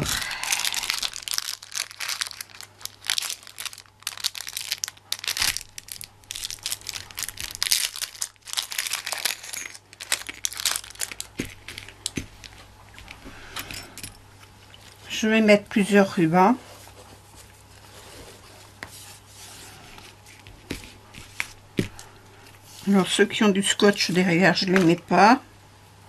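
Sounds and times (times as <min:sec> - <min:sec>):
plastic blister pack crinkling: 0:00.0 - 0:13.2.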